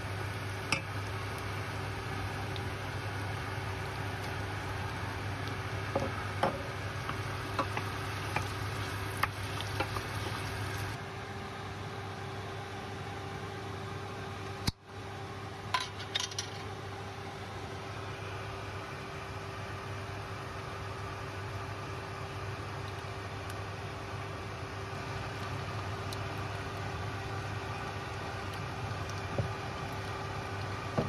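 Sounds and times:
chicken sizzling in a pot: 0:00.0 - 0:11.0
steady hum: 0:00.0 - 0:31.0.

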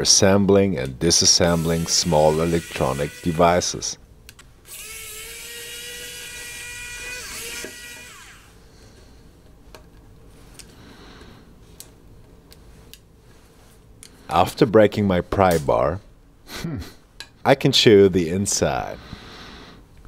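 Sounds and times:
electric screwdriver motor whining: 0:04.7 - 0:08.6.

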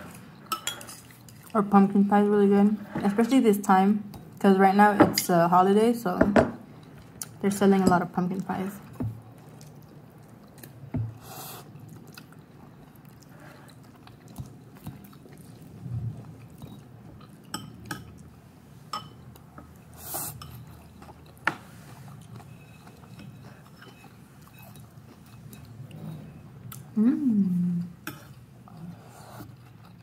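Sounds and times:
close-up chewing: 0:11.6 - 0:17.5.

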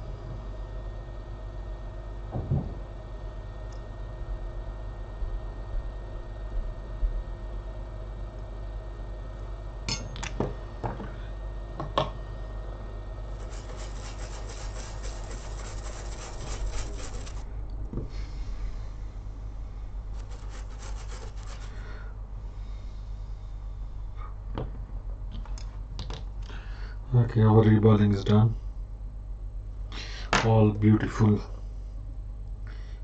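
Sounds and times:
brush scrubbing a chip: 0:13.3 - 0:17.4, 0:20.1 - 0:21.9.

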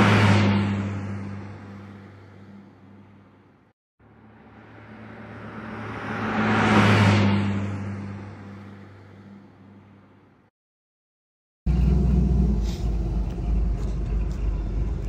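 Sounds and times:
car driving past: 0:04.0 - 0:10.0.

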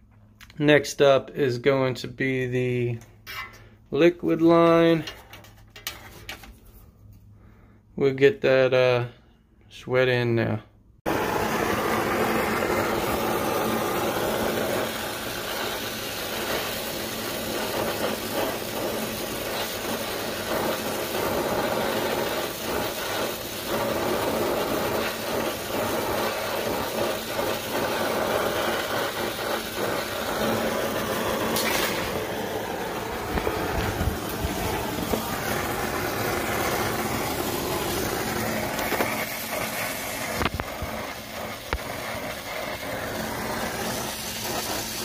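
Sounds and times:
torch flame rushing: 0:11.0 - 0:45.0.

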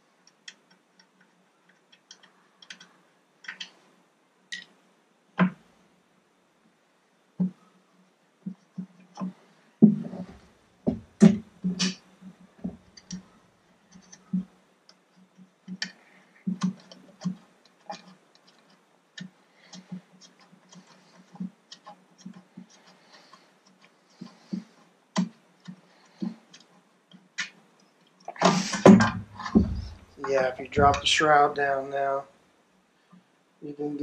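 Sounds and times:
hose knocking against motor cowling: 0:28.4 - 0:31.2.

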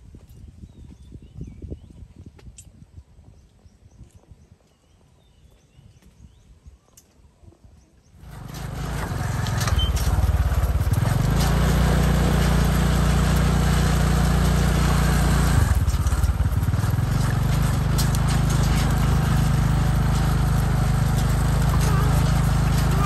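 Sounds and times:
small engine running: 0:08.2 - 0:23.0.

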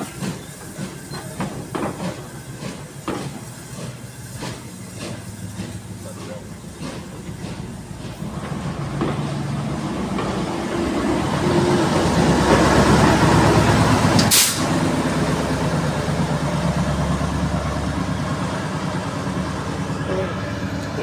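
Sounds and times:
diesel locomotive engine throbbing: 0:00.0 - 0:21.0
short sharp hiss: 0:14.2 - 0:14.7.

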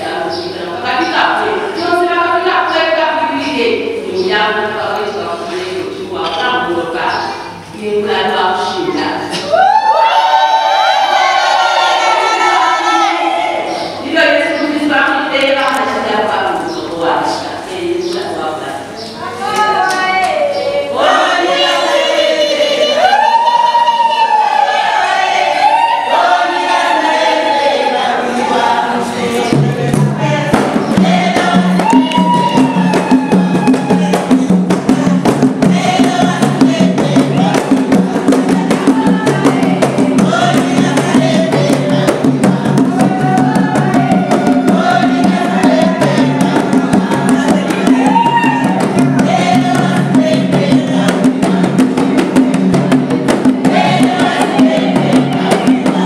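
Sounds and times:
choir singing: 0:10.3 - 0:14.0, 0:20.4 - 0:56.0
drums and percussion: 0:18.8 - 0:56.0.

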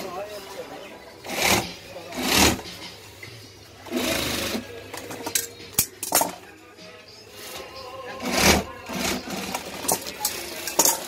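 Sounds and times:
sewing machine stitching: 0:01.2 - 0:02.6, 0:03.9 - 0:04.6.

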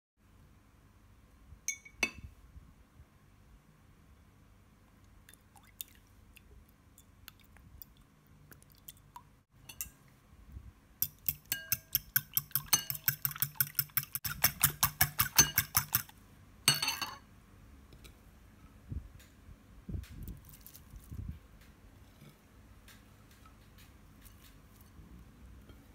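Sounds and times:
liquid egg sloshing: 0:05.2 - 0:09.3
fork clinking in ceramic bowl: 0:11.0 - 0:16.1
fork scraping bowl: 0:11.0 - 0:16.1.

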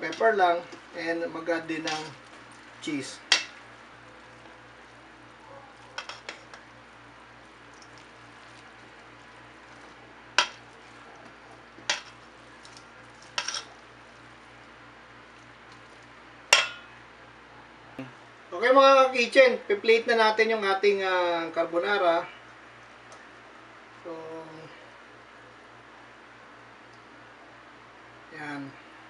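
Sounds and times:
faint steady hum: 0:00.0 - 0:29.0
tongs clinking against metal bowl: 0:01.8 - 0:02.2, 0:05.8 - 0:06.6, 0:11.8 - 0:13.8.

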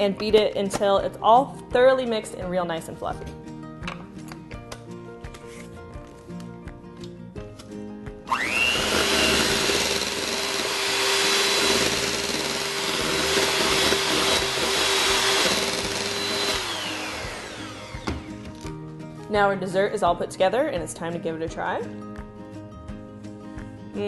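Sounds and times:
electric hand mixer whirring: 0:08.3 - 0:18.7.

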